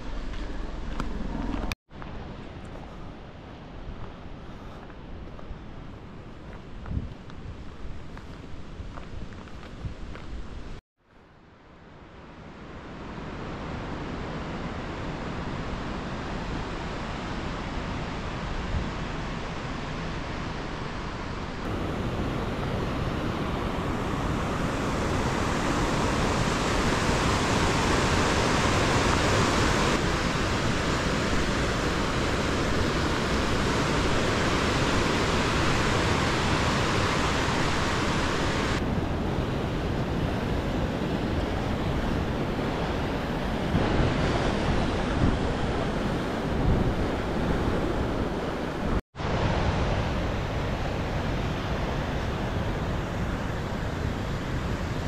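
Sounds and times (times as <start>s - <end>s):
wind on microphone: 0.0s - 10.8s, 13.1s - 55.0s
river rushing: 12.7s - 55.0s.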